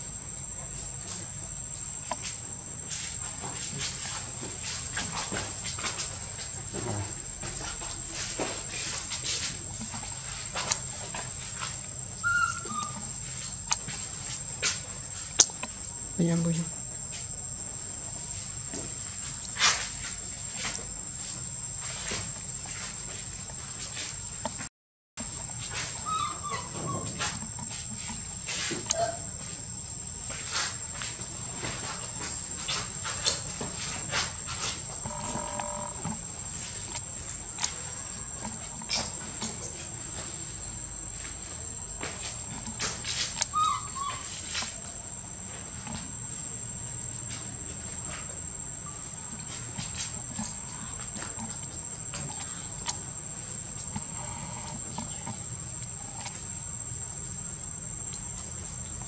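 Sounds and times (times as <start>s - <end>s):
insects droning: 0.0s - 59.0s
short squeaks: 12.2s - 13.2s.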